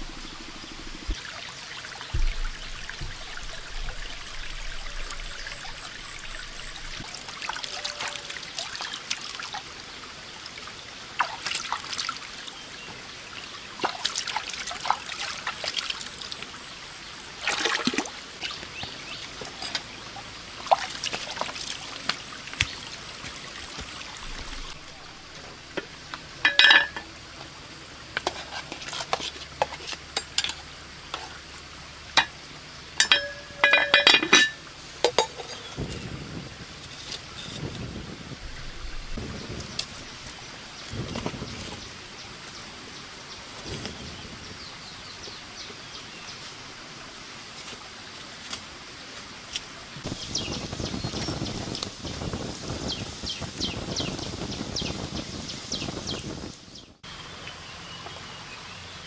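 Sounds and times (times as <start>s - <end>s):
stream water trickling: 0.0s - 59.0s
ringing clink: 33.0s - 34.6s.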